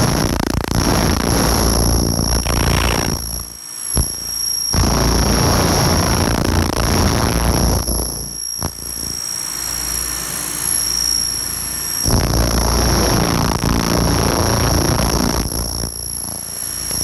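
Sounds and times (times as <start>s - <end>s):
steady high whine: 0.0s - 17.0s
laser cleaner hissing: 0.5s - 7.1s.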